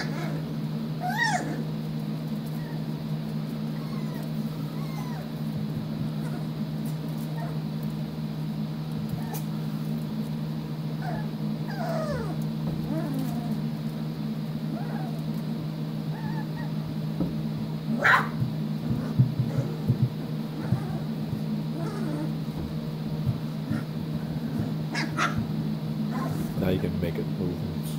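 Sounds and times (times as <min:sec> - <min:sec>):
puppies squeaky crying: 0:00.0 - 0:01.7, 0:02.5 - 0:03.0, 0:03.7 - 0:05.4, 0:07.2 - 0:07.6, 0:11.0 - 0:13.6, 0:14.7 - 0:15.2, 0:16.1 - 0:16.8, 0:20.6 - 0:22.5, 0:24.6 - 0:25.4
steady low hum: 0:00.0 - 0:27.9.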